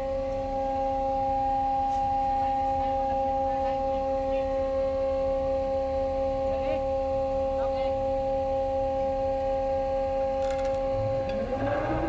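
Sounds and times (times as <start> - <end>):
davit machinery whine: 0.0 - 12.0
low rumble: 10.7 - 12.0.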